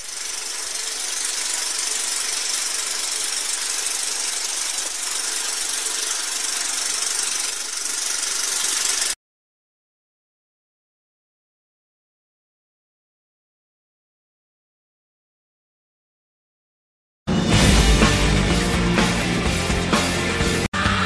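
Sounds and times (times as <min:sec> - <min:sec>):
film projector running: 0:00.0 - 0:09.2.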